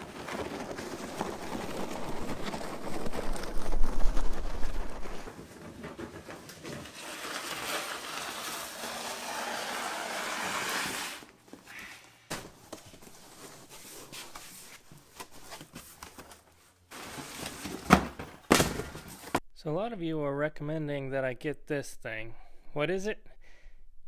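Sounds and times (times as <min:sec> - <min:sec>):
cardboard flaps rustling: 0:00.0 - 0:08.6, 0:12.3 - 0:19.4
cardboard box scraping on concrete: 0:04.1 - 0:11.3.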